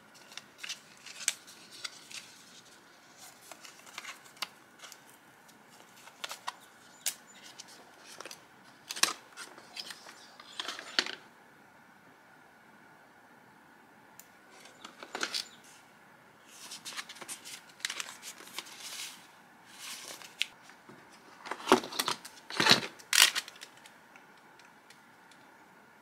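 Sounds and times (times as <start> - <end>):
paper and cardboard rustling: 0.0 - 11.2, 14.5 - 15.8, 16.5 - 23.8.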